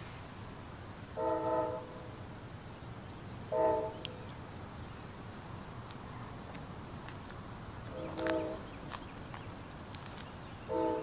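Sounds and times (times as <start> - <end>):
locomotive air horn: 1.2 - 2.1, 3.5 - 4.1, 7.9 - 8.6, 10.7 - 11.0.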